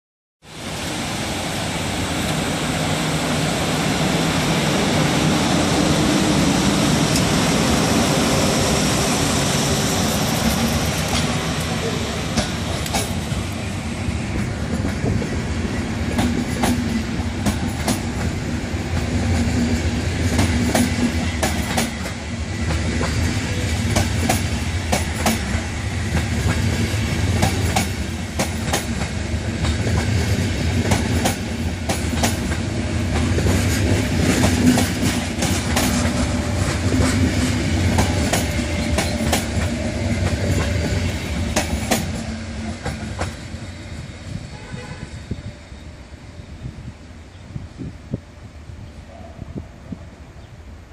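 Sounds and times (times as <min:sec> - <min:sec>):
train coaches rumbling past: 0:00.4 - 0:50.9
wheels clacking over rail joints: 0:09.7 - 0:13.5, 0:16.1 - 0:43.5.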